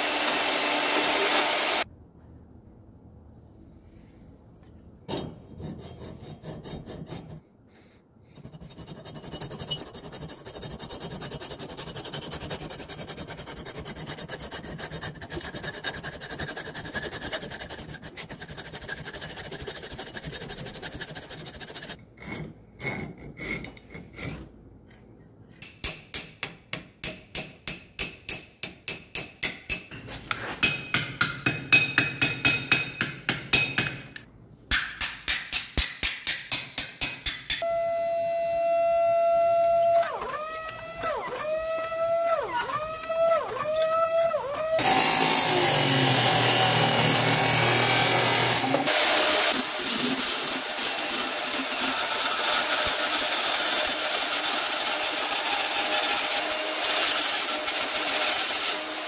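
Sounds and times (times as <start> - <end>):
hammer striking metal on anvil: 25.6 - 37.7
hacksaw cutting metal pipe: 42.4 - 59.0.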